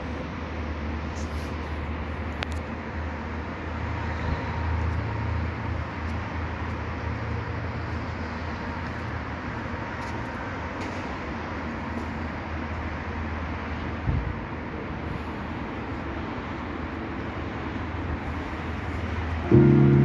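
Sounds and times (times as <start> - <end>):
low rumbling noise: 19.5 - 20.0.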